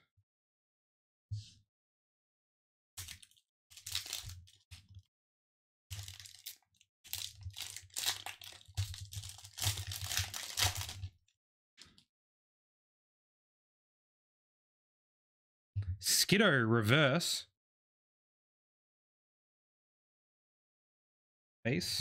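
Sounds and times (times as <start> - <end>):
foil wrapper crinkling and tearing: 3.0 - 4.8, 5.9 - 11.1.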